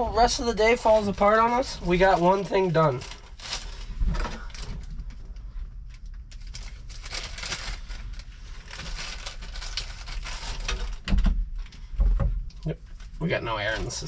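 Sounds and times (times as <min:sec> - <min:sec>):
steady low rumble: 0:00.0 - 0:14.0
small objects rustling and clicking: 0:05.9 - 0:11.1.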